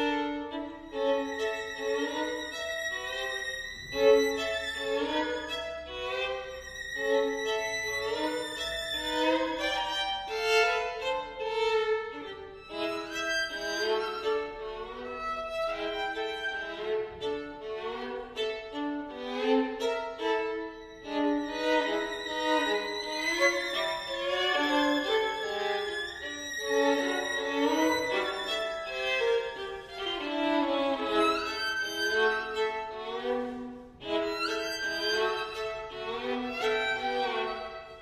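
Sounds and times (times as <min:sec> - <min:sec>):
two violins playing: 0:00.0 - 0:38.0.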